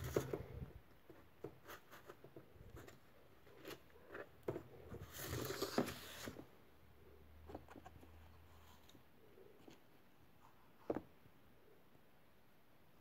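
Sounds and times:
cardboard scraping rustle: 0:02.8 - 0:06.5.

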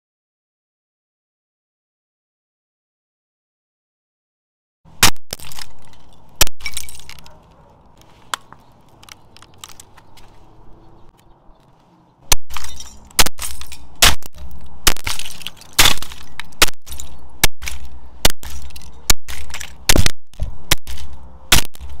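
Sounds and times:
sledgehammer smashing camera: 0:05.0 - 0:07.2, 0:12.3 - 0:22.0.

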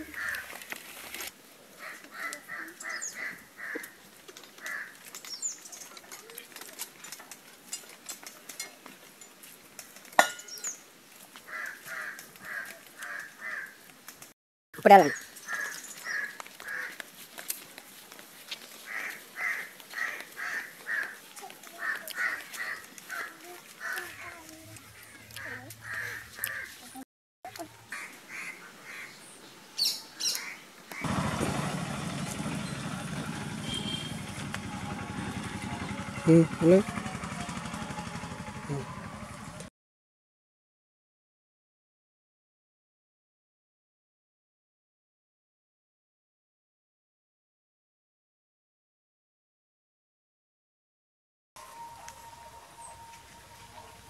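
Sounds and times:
crow cawing: 0:00.0 - 0:00.6, 0:01.8 - 0:04.0, 0:04.6 - 0:05.0, 0:11.4 - 0:13.8, 0:15.1 - 0:17.0, 0:18.8 - 0:26.9, 0:27.9 - 0:29.2, 0:30.2 - 0:31.2
metallic clank: 0:10.2 - 0:10.6.

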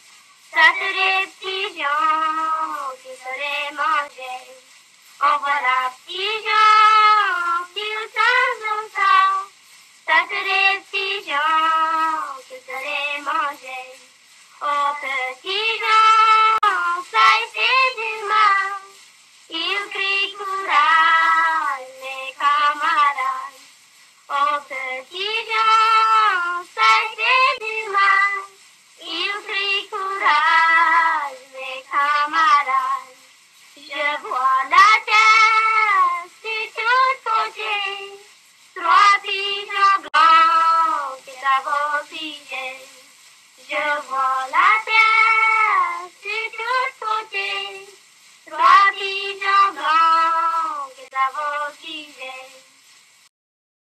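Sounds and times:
high voice singing unaccompanied: 0:00.5 - 0:23.7, 0:24.3 - 0:52.8.

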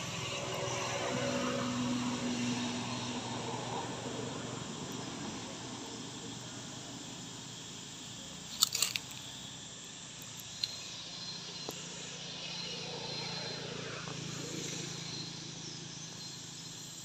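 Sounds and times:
outdoor background hiss: 0:00.0 - 0:17.0
sharp clicks: 0:08.5 - 0:09.3.

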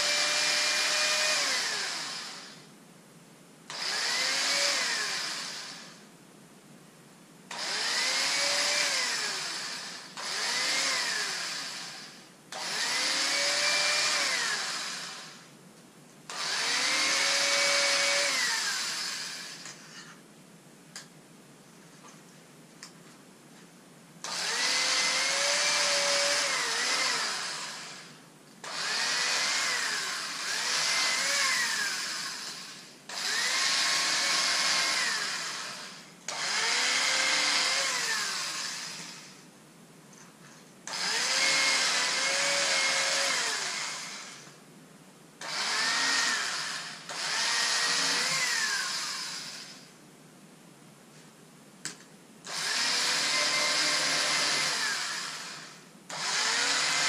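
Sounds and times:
small electric motor whining: 0:00.0 - 0:02.6, 0:03.7 - 0:06.0, 0:07.5 - 0:15.5, 0:16.3 - 0:20.1, 0:24.2 - 0:39.4, 0:40.9 - 0:44.6, 0:45.4 - 0:49.9, 0:52.5 - 0:57.0.

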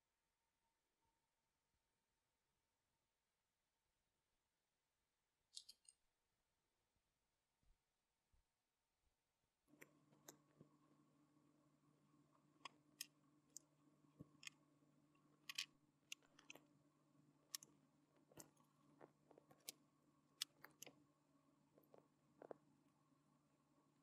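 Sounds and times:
faint steady hum: 0:09.7 - 0:24.0
small plastic clicks and taps: 0:15.4 - 0:16.6, 0:20.4 - 0:21.0.

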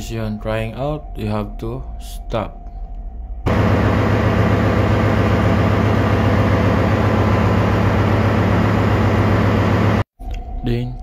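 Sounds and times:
engine-room machinery humming: 0:02.7 - 0:10.6.

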